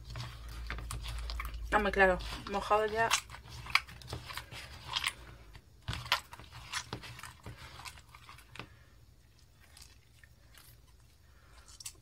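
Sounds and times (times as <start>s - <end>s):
hands kneading sticky slime: 0.0s - 12.0s.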